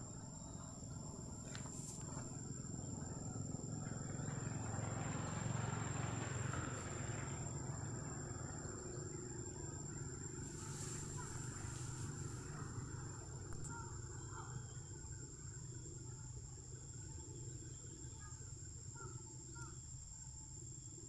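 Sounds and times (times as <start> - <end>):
motor vehicle passing: 0.8 - 13.6.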